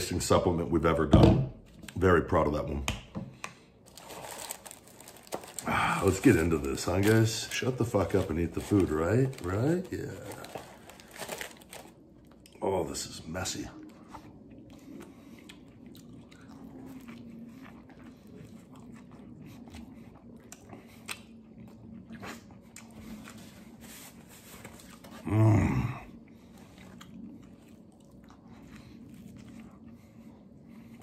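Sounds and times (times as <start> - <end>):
man chewing food: 3.3 - 12.6, 13.8 - 31.0
man humming or grunting: 25.2 - 26.1.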